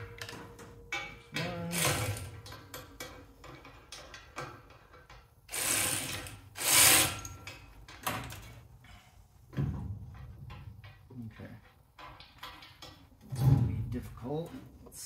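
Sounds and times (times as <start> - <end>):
metal tools knocking: 0.0 - 5.5, 7.2 - 13.3.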